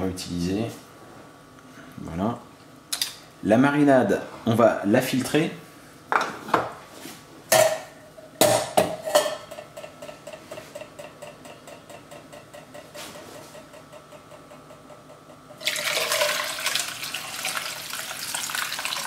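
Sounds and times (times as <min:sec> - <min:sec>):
metal utensils clattering: 0:09.0 - 0:09.9
liquid pouring into metal strainer: 0:15.6 - 0:19.0.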